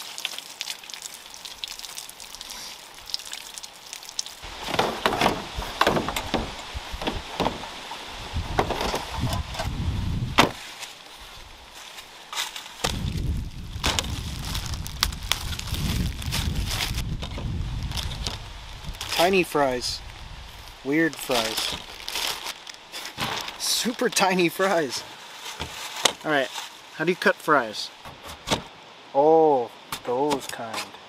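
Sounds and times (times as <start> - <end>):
water trickling over hands: 0.0 - 4.7
plastic bag crinkling: 12.5 - 17.0, 21.3 - 24.2.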